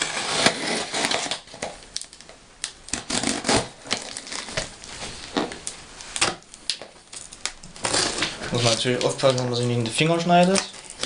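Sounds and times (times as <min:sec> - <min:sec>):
packing tape rustling: 0:00.0 - 0:11.0.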